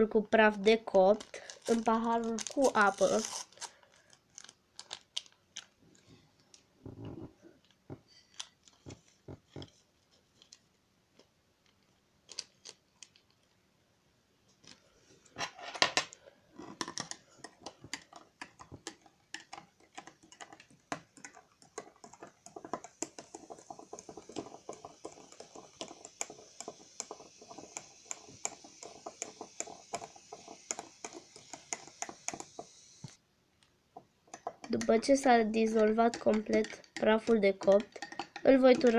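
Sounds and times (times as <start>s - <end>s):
paper sachet rustling: 1.1s - 5.8s.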